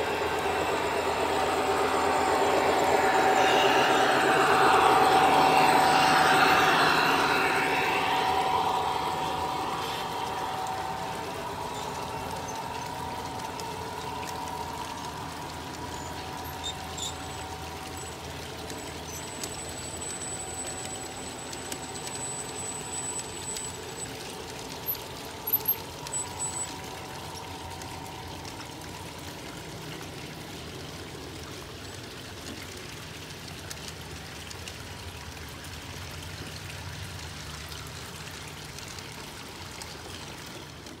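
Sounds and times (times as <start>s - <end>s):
model train cars rolling: 0.0s - 31.7s
faint high ringing tone: 0.0s - 32.0s.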